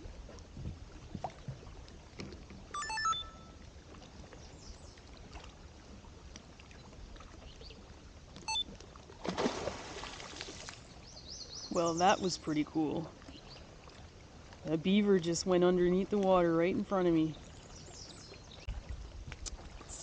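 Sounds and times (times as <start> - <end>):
water lapping: 0.0 - 20.0
beaver diving splash: 9.1 - 10.9.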